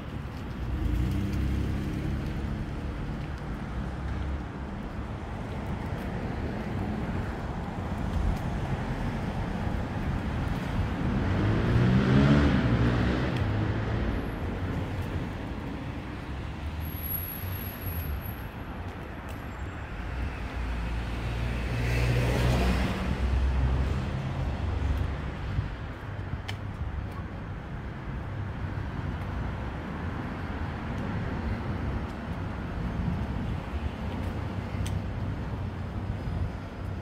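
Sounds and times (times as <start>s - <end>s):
traffic rumble: 0.0s - 37.0s
car passing: 8.7s - 18.1s
car accelerating past: 11.1s - 14.2s.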